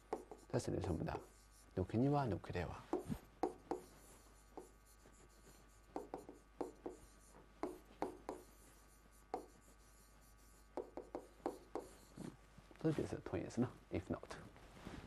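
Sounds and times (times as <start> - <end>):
pen scratching on a board: 0.0 - 1.7, 2.9 - 12.3.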